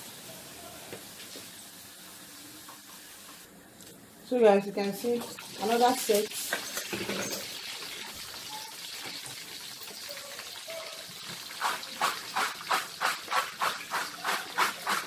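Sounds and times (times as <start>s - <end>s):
chips sizzling in hot oil: 4.8s - 15.0s.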